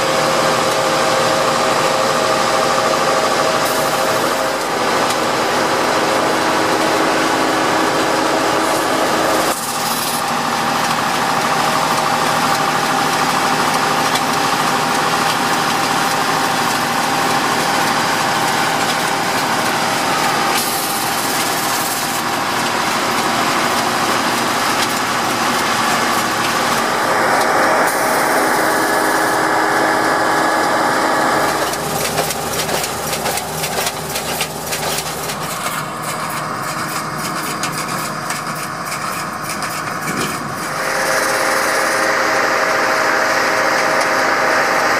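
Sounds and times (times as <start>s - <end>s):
harvester engine running: 0.0s - 44.9s
power harrow churning soil: 0.0s - 44.9s.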